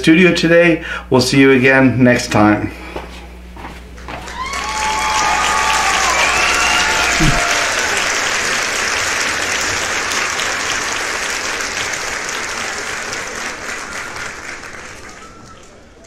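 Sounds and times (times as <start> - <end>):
crowd applause: 4.1 - 16.0.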